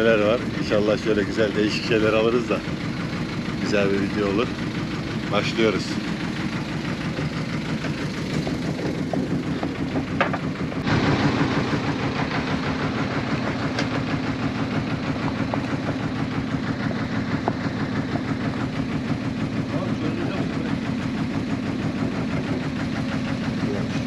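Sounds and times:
boat engine idling: 0.0s - 24.0s.

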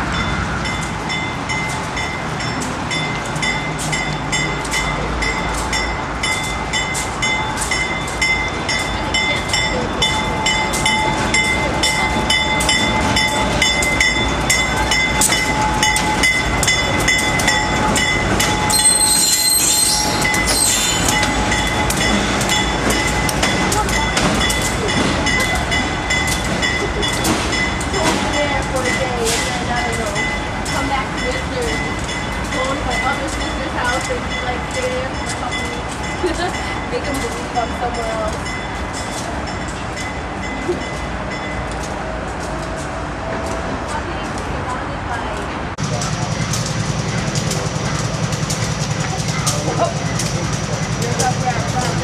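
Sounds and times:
diesel locomotive engines: 0.0s - 52.0s
wheels clicking over rail joints: 0.1s - 52.0s
high-pitched squeal: 9.1s - 24.9s.

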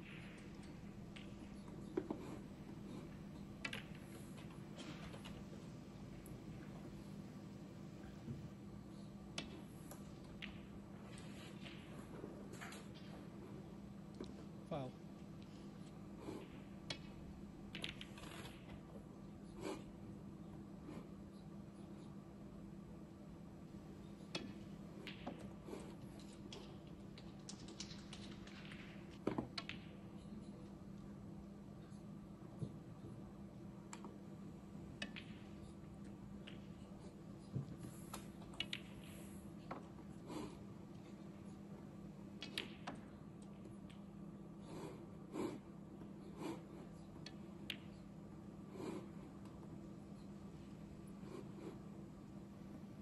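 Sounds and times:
snooker balls clicking: 0.0s - 8.6s, 9.2s - 14.5s, 16.4s - 19.4s, 23.7s - 31.1s, 33.8s - 44.3s, 47.1s - 53.0s
soft breathy puffs: 44.4s - 52.5s.

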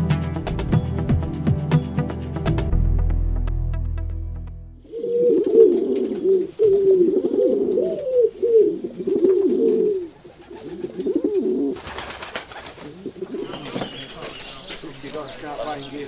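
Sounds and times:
pigeons cooing: 4.8s - 16.0s.

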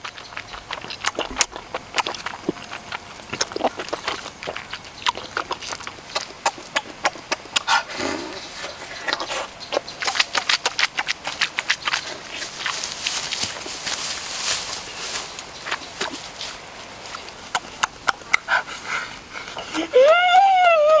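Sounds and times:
leafy branch rustling and crackling: 10.0s - 17.8s.

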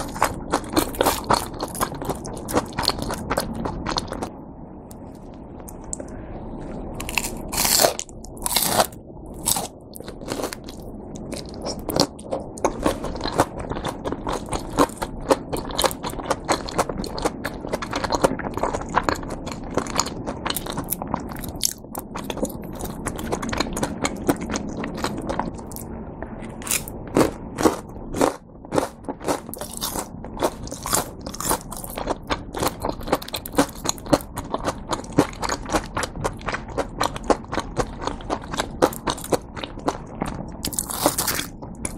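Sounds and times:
crunchy chewing of fried food: 0.0s - 4.3s, 7.0s - 41.9s.

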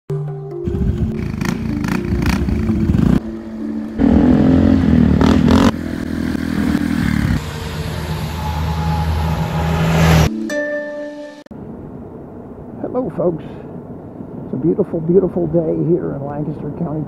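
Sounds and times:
motorcycle passing by: 0.6s - 10.3s
motorcycle engine revving: 0.7s - 3.4s, 4.0s - 10.3s.

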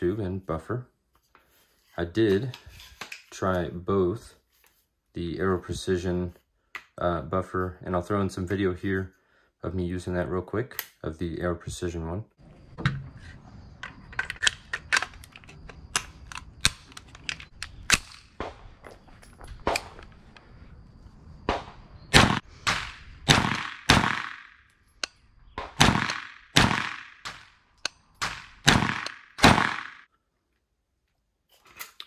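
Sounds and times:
gunshots with ringing tail: 21.5s - 24.5s, 25.6s - 27.5s, 28.2s - 30.0s.

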